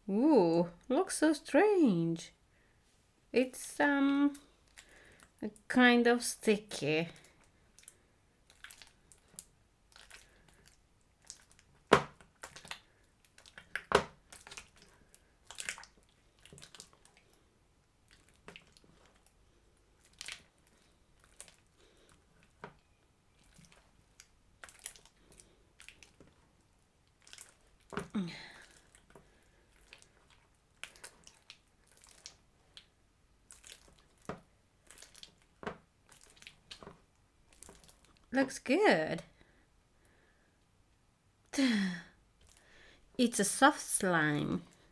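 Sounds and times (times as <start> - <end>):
slime squelching and popping: 7.1 - 38.3.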